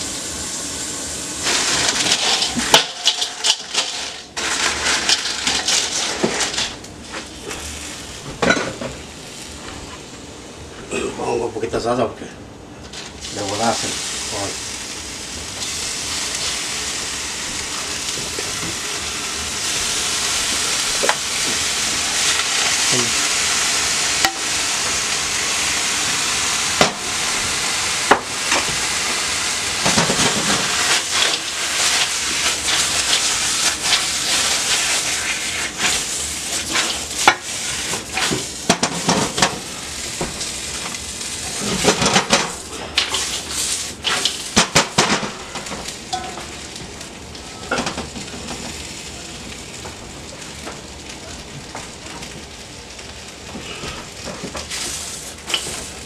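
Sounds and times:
salsa sizzling in a pan: 0.0 - 10.7, 13.0 - 56.0
chips stirred in metal pan: 1.5 - 6.8.

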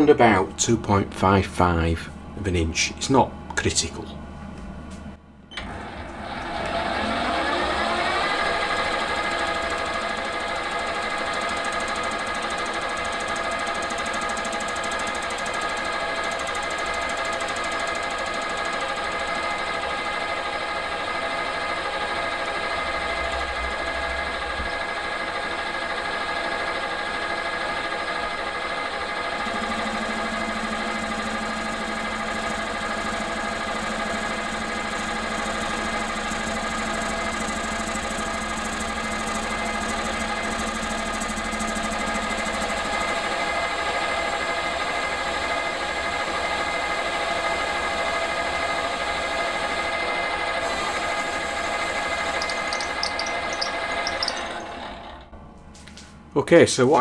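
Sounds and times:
metal lathe cutting: 6.6 - 45.4, 48.5 - 55.1
lower hum: 29.2 - 43.2.

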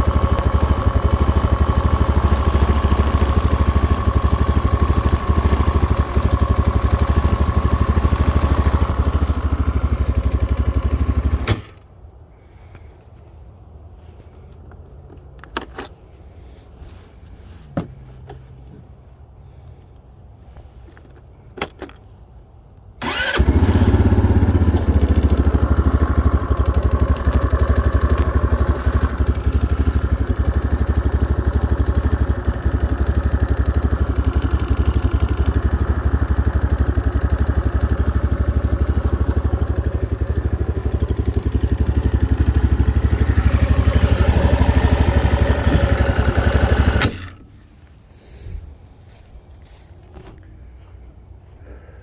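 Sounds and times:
small atv engine running: 0.0 - 11.8, 23.0 - 47.8.

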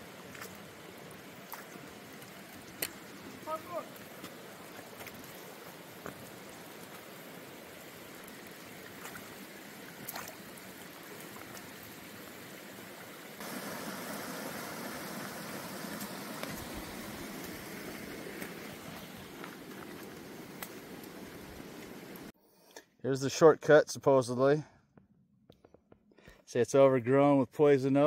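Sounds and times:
creek water rushing: 0.0 - 22.3.

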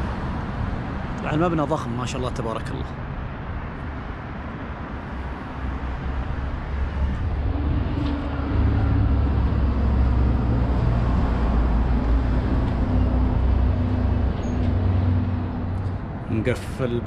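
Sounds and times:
road noise: 0.0 - 17.0
vehicle engine humming: 3.6 - 17.0.

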